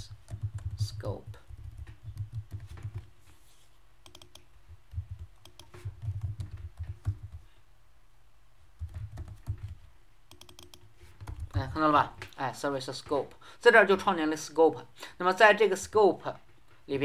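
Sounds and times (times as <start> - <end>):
computer keyboard key clicks: 4.0 - 4.5, 5.2 - 7.2, 8.8 - 11.6.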